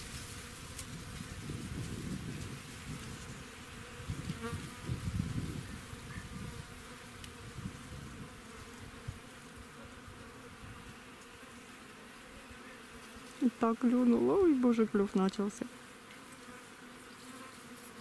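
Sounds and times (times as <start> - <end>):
insects buzzing: 0.0 - 18.0.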